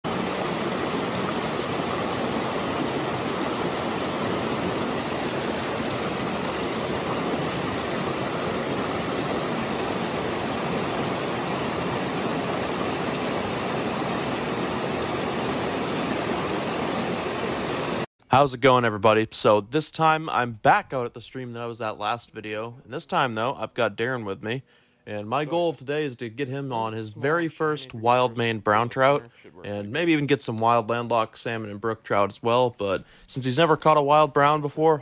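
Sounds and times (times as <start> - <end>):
stream rushing over stones: 0.0 - 18.1.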